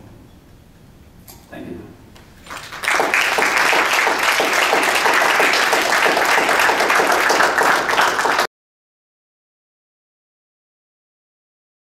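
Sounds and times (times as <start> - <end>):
audience applauding: 2.2 - 8.5.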